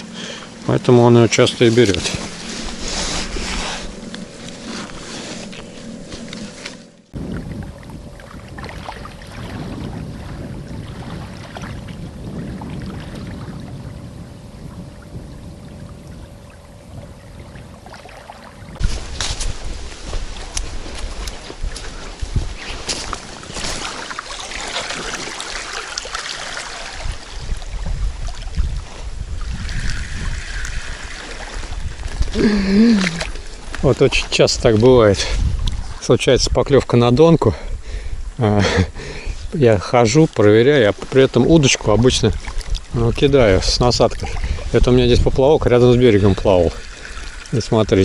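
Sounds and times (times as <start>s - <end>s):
river water lapping: 0.0s - 36.2s, 37.6s - 48.0s
wind on microphone: 0.0s - 48.0s
faint steady hum: 13.3s - 41.5s.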